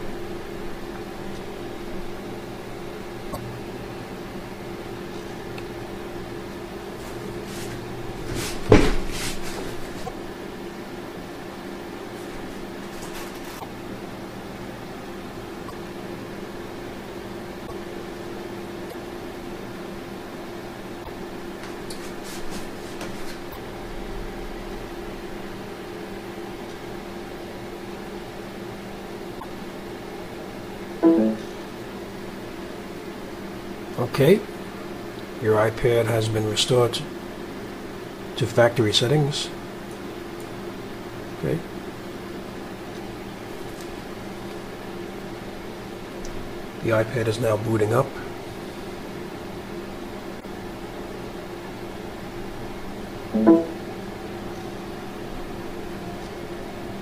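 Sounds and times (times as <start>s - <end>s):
steady machine hum: 0.0s - 57.0s
rustling noise: 7.0s - 10.1s, 12.2s - 13.6s, 21.9s - 23.4s.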